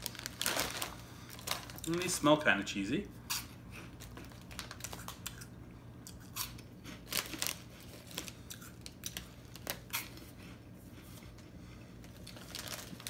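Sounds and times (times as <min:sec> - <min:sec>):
plastic snack bag crinkling: 0:00.0 - 0:02.3, 0:04.0 - 0:05.5, 0:06.4 - 0:10.2, 0:12.0 - 0:13.0
popcorn puffs crunching: 0:00.0 - 0:02.4, 0:03.3 - 0:10.4, 0:12.0 - 0:13.0.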